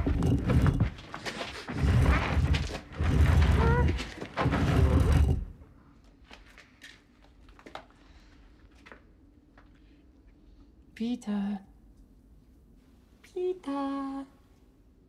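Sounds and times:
stone door grinding open: 0:00.0 - 0:05.8.

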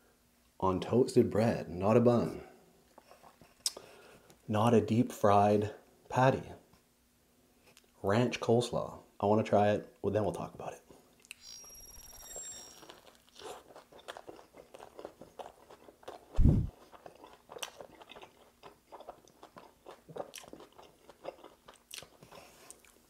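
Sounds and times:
crunchy chewing: 0:12.0 - 0:23.0
deep thump: 0:16.4 - 0:16.7.

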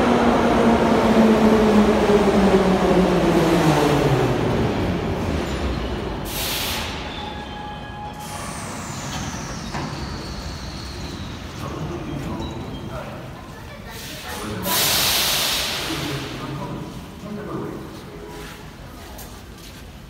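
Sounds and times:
air brake hiss: 0:06.2 - 0:07.1, 0:13.9 - 0:16.2.

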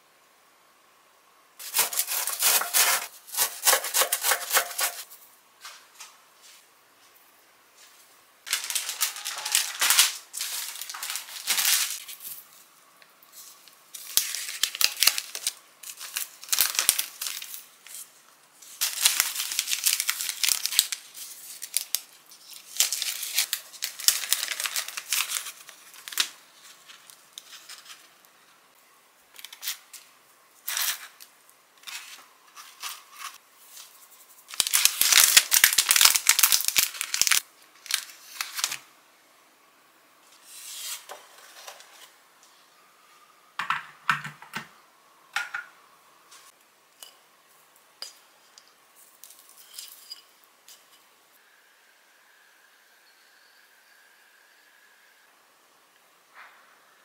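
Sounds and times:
crisp bars crackling: 0:01.6 - 0:05.1, 0:08.5 - 0:12.2, 0:13.9 - 0:18.0, 0:18.7 - 0:28.2, 0:34.5 - 0:38.8
plastic bags crinkling: 0:08.4 - 0:12.2, 0:13.9 - 0:18.0, 0:18.7 - 0:28.0, 0:34.5 - 0:38.8.

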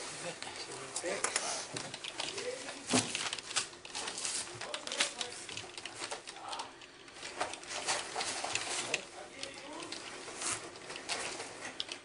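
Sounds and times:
rustling: 0:00.0 - 0:12.0
faint indistinct voices: 0:04.3 - 0:11.9.

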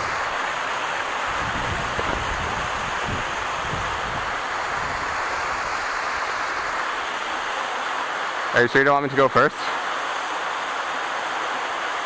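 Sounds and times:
waterfall rushing: 0:00.0 - 0:12.0
wind buffeting on microphone: 0:01.2 - 0:06.7.

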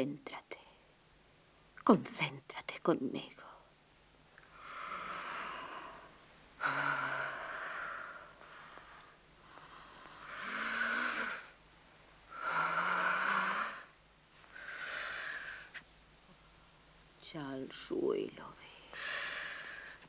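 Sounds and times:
woman breathing heavily: 0:04.4 - 0:11.6, 0:12.3 - 0:15.8, 0:18.8 - 0:20.0
woman moaning: 0:06.6 - 0:08.3.

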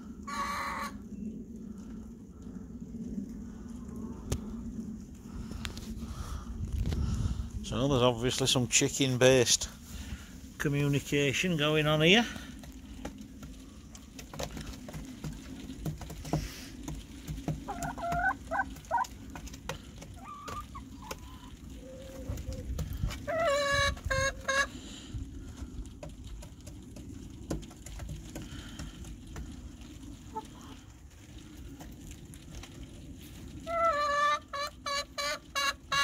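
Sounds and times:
hens clucking: 0:00.2 - 0:01.0, 0:14.2 - 0:24.8, 0:30.1 - 0:30.8, 0:33.6 - 0:36.0.

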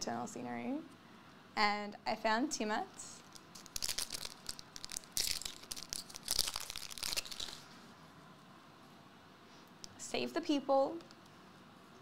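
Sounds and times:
foil wrapper crinkling and tearing: 0:03.2 - 0:07.7.

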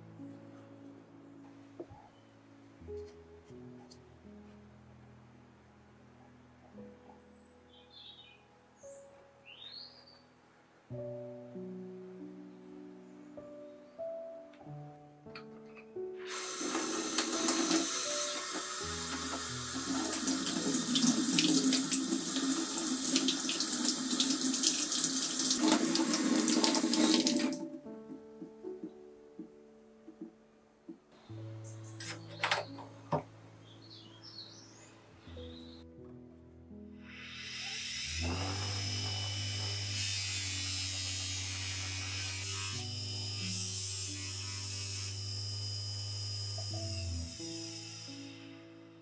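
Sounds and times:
tap water running and splashing: 0:16.3 - 0:27.6
buffing motor humming: 0:37.3 - 0:47.4.

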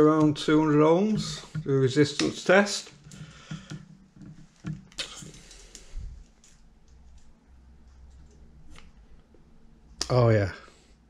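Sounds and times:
test probes clicking: 0:01.2 - 0:09.3
low rumble of handling: 0:02.8 - 0:10.0.

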